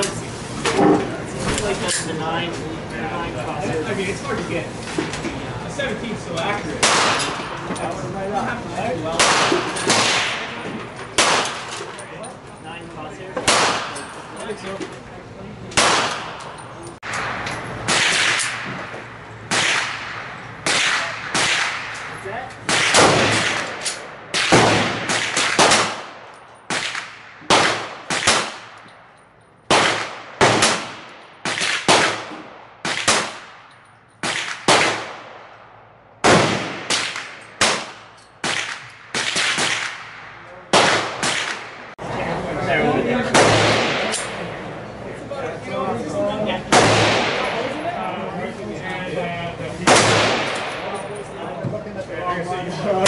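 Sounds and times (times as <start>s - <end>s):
pistol shots with echo: 6.8s - 7.5s, 9.2s - 11.8s, 13.4s - 14.2s, 15.7s - 18.9s, 19.5s - 28.8s, 29.7s - 42.0s, 43.2s - 44.5s, 46.7s - 47.8s, 49.8s - 51.0s.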